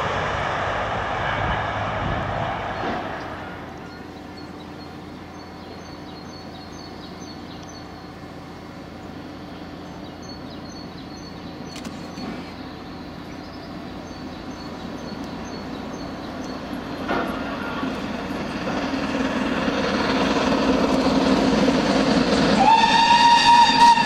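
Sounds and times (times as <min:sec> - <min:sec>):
distant steam locomotive rumble: 0:00.0 - 0:24.0
small birds chirping: 0:03.2 - 0:18.1.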